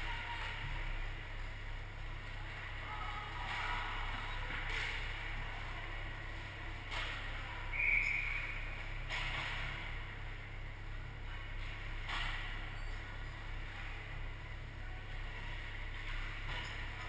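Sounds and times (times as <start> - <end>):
steady low hum: 0.0 - 17.0
short high whistle: 7.7 - 8.6.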